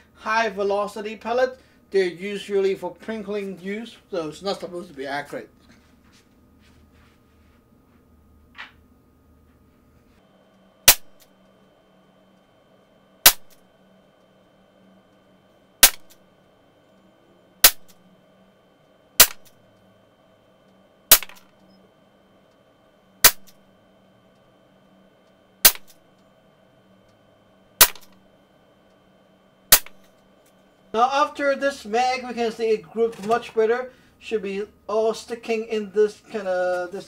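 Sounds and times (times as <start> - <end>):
pellet revolver shots: 10.9 - 11.2, 13.2 - 13.6, 15.8 - 16.2, 17.6 - 18.0, 19.2 - 19.5, 21.1 - 21.5, 23.2 - 23.6, 25.6 - 26.0, 27.8 - 28.2, 29.7 - 30.1.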